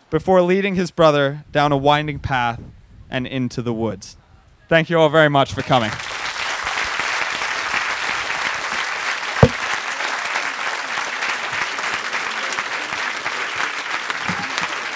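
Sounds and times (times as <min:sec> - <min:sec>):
audience applauding: 0:06.0 - 0:14.9.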